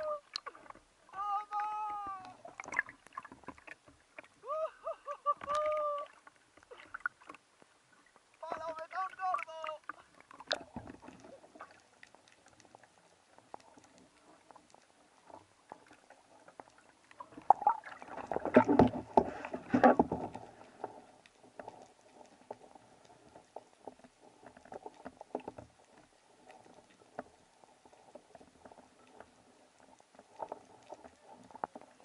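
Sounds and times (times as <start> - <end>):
underwater clicks crackling: 0.0 - 4.4, 5.4 - 32.0
churning water rushing: 0.0 - 21.7.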